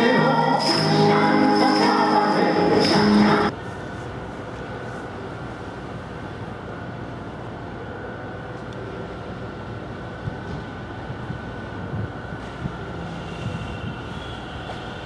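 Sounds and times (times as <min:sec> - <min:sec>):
music: 0:00.0 - 0:03.5.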